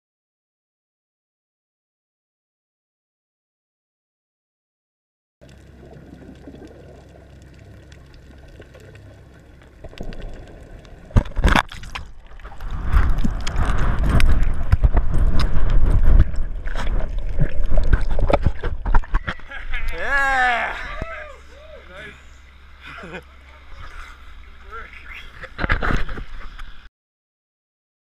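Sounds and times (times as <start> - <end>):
seawater sloshing and splashing: 8.5 - 19.7
faint hiss: 19.6 - 25.6.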